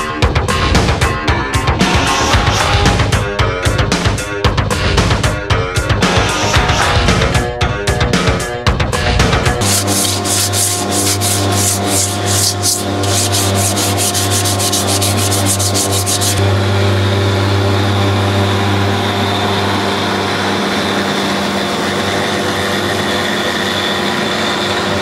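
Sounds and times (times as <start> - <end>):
abrasive pad scuffing coating: 9.6 - 16.4.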